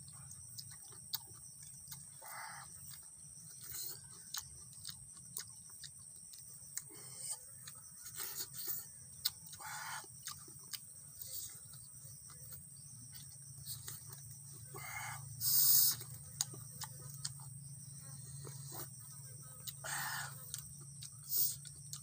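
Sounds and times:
mouth clicks while eating: 0.4 - 11.9, 19.6 - 22.0.

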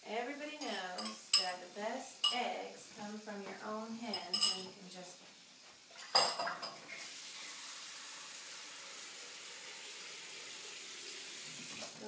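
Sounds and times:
food sizzling in pan: 0.0 - 12.0
dish clinking: 0.6 - 1.6, 4.1 - 4.7, 6.0 - 6.8.

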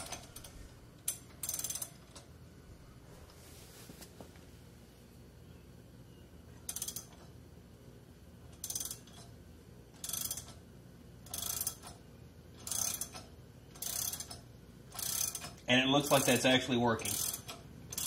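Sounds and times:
ratchet wrench clicking: 0.0 - 2.3, 6.6 - 7.3, 8.5 - 10.6, 11.2 - 12.0, 12.6 - 18.0.

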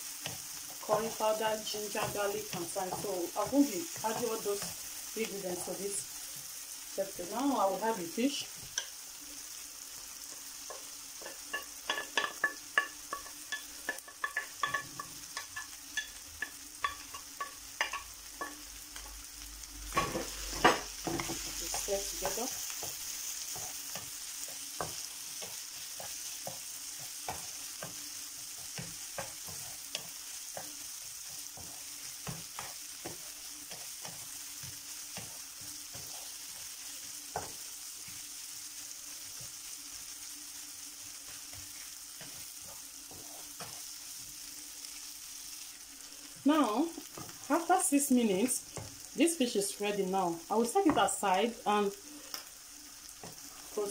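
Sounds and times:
food sizzling in frying pan: 0.0 - 53.9
wooden spatula tapping and scraping: 0.2 - 6.4, 10.2 - 19.2, 20.0 - 38.2, 41.0 - 44.4, 46.3 - 49.1, 50.0 - 51.4, 53.1 - 53.9.

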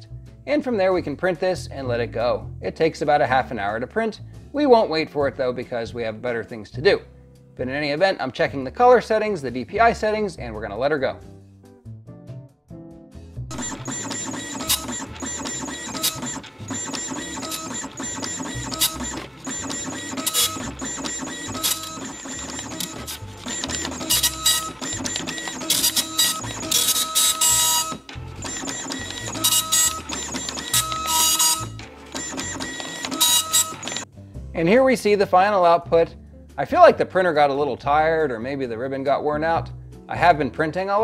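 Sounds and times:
dot matrix printer printing: 13.5 - 34.1.

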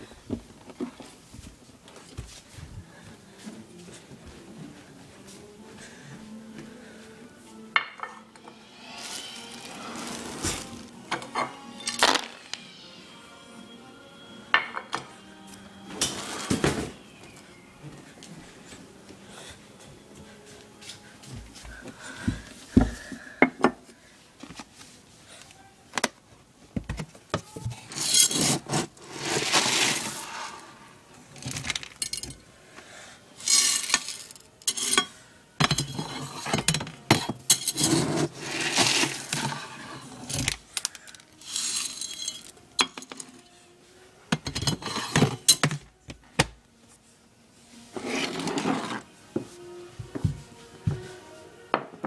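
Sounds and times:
dry kibble poured into bowl: 29.2 - 30.7.

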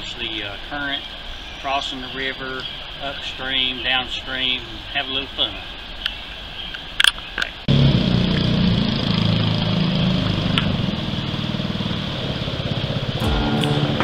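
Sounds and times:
boat engine running: 7.7 - 14.0.

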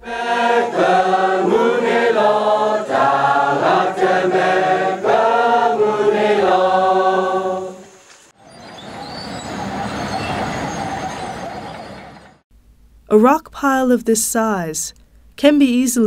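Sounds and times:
group singing a prayer chant: 0.0 - 8.0.

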